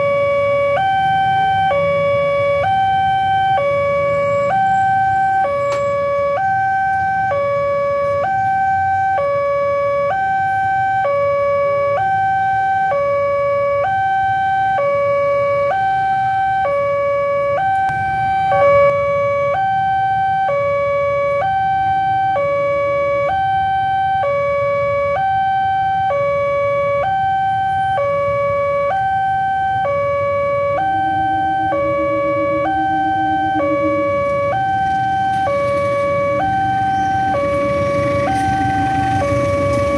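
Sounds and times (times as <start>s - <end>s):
traffic rumble: 0.0s - 39.9s
level crossing alarm two-note tone: 17.6s - 19.3s, 28.9s - 39.9s.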